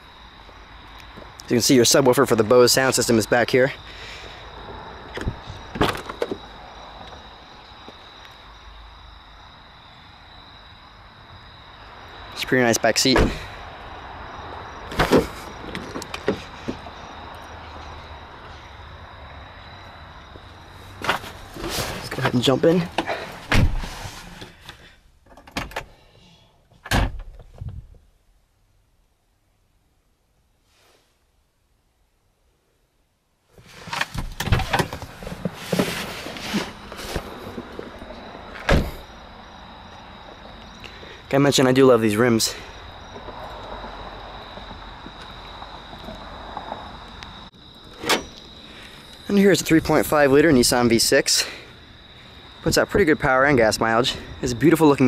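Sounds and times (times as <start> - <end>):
car door slamming: 13.2 - 13.5, 23.4 - 23.9, 38.6 - 39.1
car door opening: 22.9 - 24.5, 33.7 - 37.9, 38.5 - 39.1, 47.9 - 48.4.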